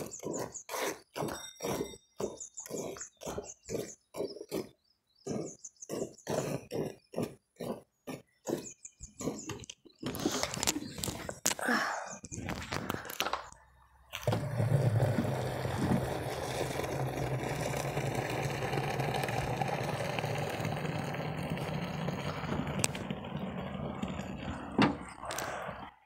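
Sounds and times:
milk pouring into a can: 14.3 - 23.1.

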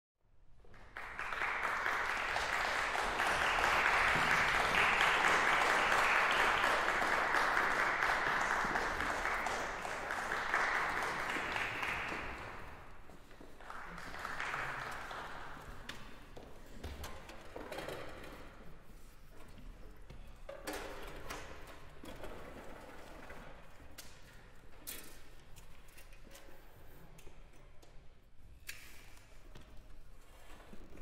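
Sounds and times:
audience applauding: 0.7 - 15.8.

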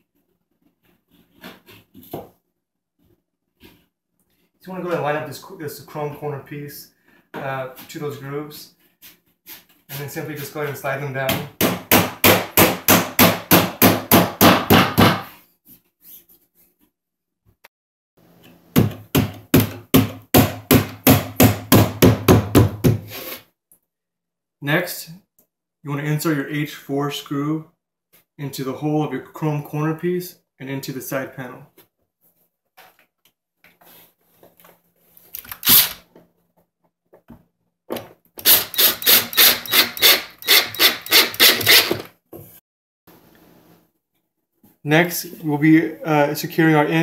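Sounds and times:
cordless drill driving screw: 35.5 - 36.0, 38.4 - 42.1.

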